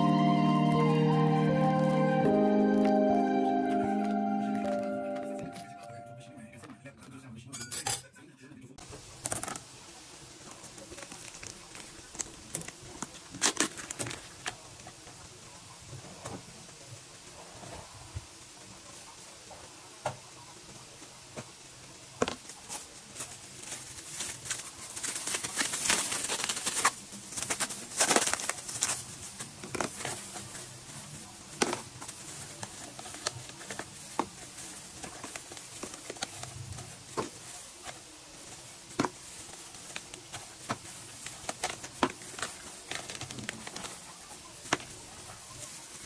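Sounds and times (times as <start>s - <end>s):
plastic bag crinkling: 10.4s - 14.9s, 22.4s - 46.0s
frozen cubes clicking into plastic tub: 38.9s - 44.0s.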